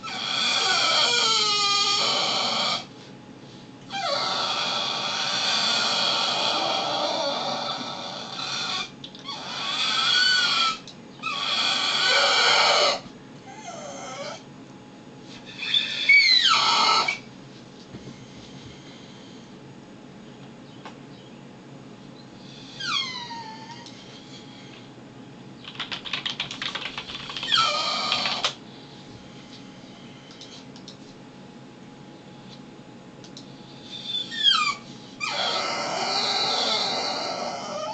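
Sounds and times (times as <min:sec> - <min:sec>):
dog whining howls: 0:00.0 - 0:02.9, 0:03.9 - 0:14.5, 0:15.6 - 0:17.3, 0:22.7 - 0:23.9, 0:27.4 - 0:28.6, 0:33.9 - 0:37.9.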